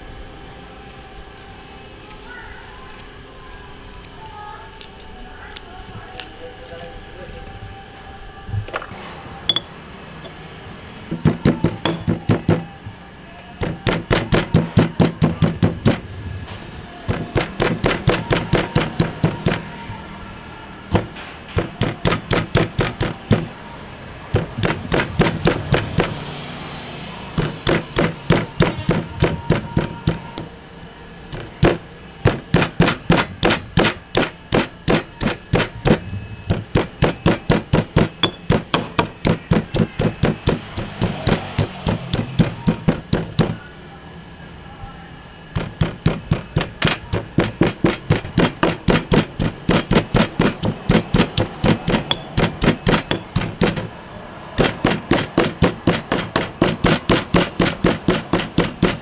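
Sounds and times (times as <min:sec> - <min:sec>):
pestle pounding in stone mortar: 0:11.1 - 0:12.7, 0:13.6 - 0:16.0, 0:17.1 - 0:19.7, 0:20.9 - 0:23.5, 0:24.4 - 0:26.3, 0:27.4 - 0:30.5, 0:31.3 - 0:43.6, 0:45.5 - 0:53.9, 0:54.6 - 0:59.0.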